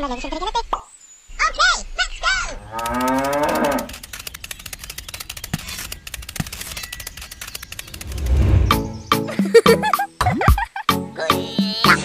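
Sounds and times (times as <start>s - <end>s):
cow mooing: 2.5s - 4.0s
light clicks and ticks: 2.6s - 8.5s.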